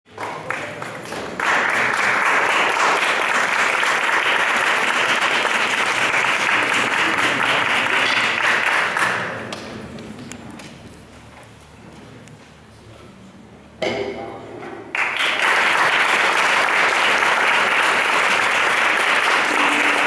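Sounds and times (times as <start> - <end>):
audience applauding: 0.1 - 9.6, 14.9 - 20.0.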